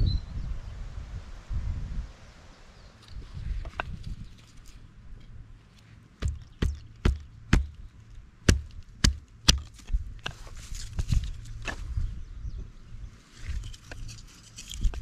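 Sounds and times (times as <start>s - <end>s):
knife knocking through wood: 6.2s - 7.8s, 8.5s - 10.4s.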